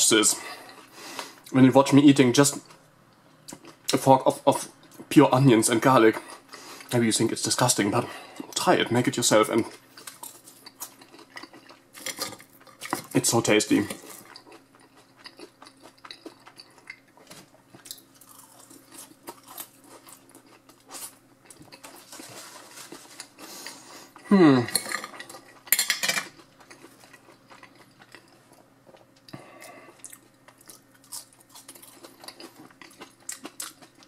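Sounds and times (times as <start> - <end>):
chewing: 9.6 - 13.2, 13.8 - 34.0.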